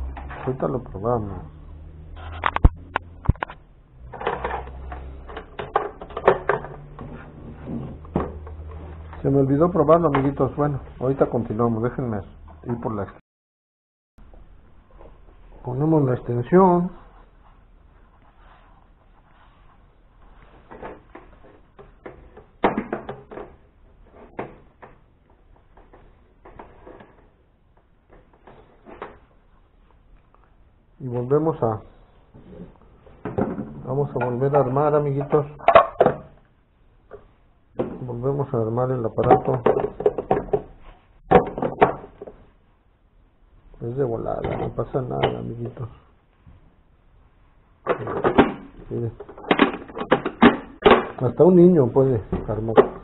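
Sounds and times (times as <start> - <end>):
plastic parts clicking and knocking: 2.4 - 7.1, 20.7 - 29.3, 33.2 - 36.4, 39.2 - 42.5, 47.8 - 51.3.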